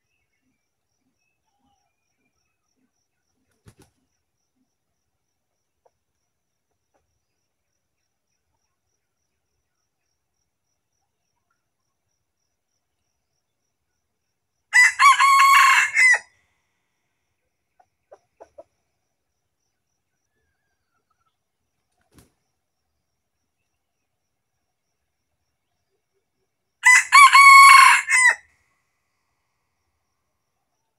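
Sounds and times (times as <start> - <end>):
rooster crowing: 14.7 - 16.3, 26.8 - 28.5.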